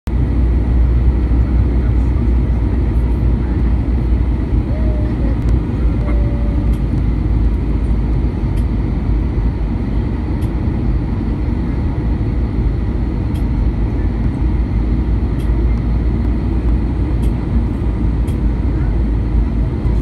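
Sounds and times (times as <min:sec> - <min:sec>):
jet engine and airflow rumble: 0:00.1 - 0:20.0.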